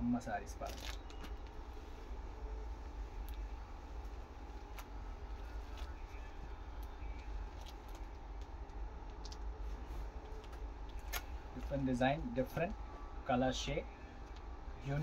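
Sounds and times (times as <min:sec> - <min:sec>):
low background hum: 0:00.0 - 0:15.0
fabric rustling: 0:00.6 - 0:08.6.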